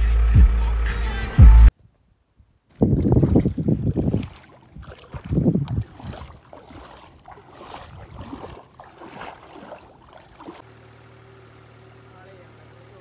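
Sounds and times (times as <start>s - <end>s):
wind on microphone: 2.7s - 6.8s, 7.6s - 8.6s
muddy water sloshing: 2.7s - 10.7s
tractor engine running: 5.4s - 13.0s.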